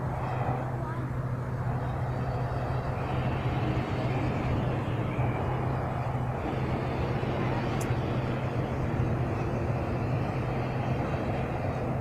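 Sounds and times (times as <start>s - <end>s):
low engine drone: 0.0s - 12.0s.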